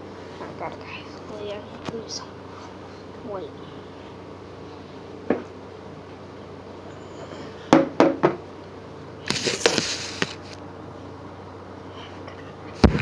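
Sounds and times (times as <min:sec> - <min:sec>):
low room hum: 0:00.0 - 0:13.0
rustling and scraping: 0:09.2 - 0:10.6.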